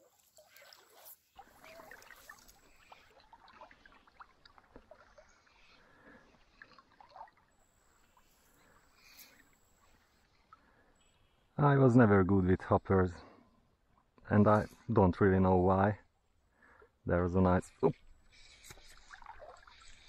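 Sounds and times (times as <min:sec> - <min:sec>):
water sloshing around wading legs: 0:00.0 - 0:10.6, 0:18.4 - 0:20.0
small splashes: 0:00.0 - 0:10.7, 0:18.4 - 0:20.0.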